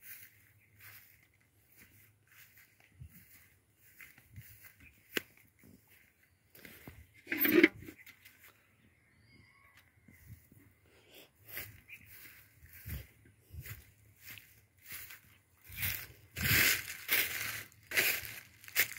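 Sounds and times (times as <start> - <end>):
footsteps crunching through dry leaves: 0.0 - 7.2, 11.4 - 18.9.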